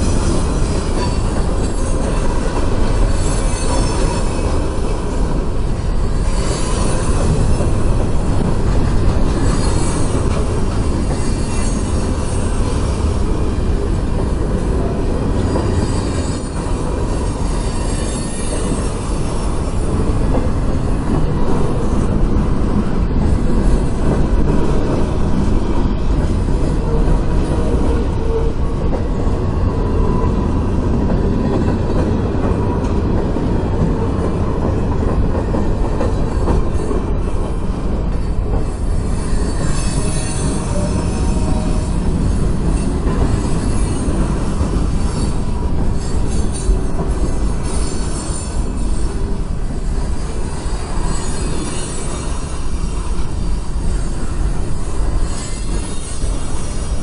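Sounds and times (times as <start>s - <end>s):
high wheel squeal: 0.0s - 5.2s, 9.2s - 13.2s, 15.3s - 20.0s, 38.1s - 57.0s
steel wheels rumbling on rails: 0.0s - 57.0s.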